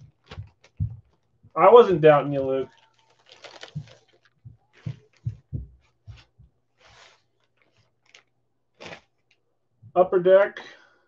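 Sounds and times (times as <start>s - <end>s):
soft thuds: 0.0s - 1.6s, 3.5s - 6.6s
plastic bag crinkling: 2.0s - 5.5s, 6.8s - 9.4s.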